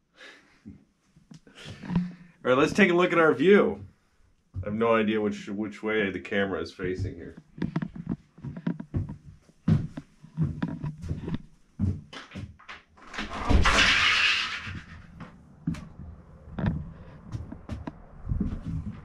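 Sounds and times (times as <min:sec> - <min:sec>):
footsteps on wooden porch: 0:03.6 - 0:04.9, 0:06.8 - 0:13.0, 0:15.1 - 0:19.0
footsteps on wooden floor: 0:03.7 - 0:04.8, 0:06.8 - 0:12.8, 0:15.1 - 0:19.0
door opening with rush of noise: 0:12.6 - 0:19.0.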